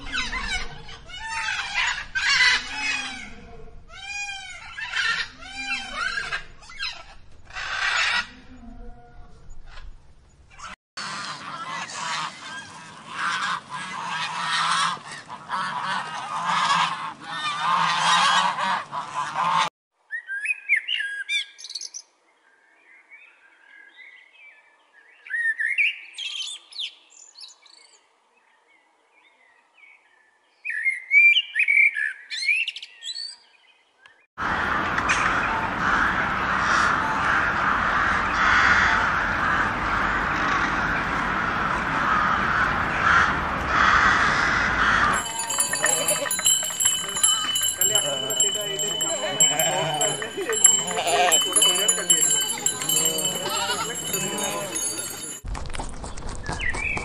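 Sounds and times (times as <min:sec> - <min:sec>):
geese honking: 0:10.6 - 0:19.7, 0:42.0 - 0:55.1
crows cawing: 0:42.0 - 0:46.4.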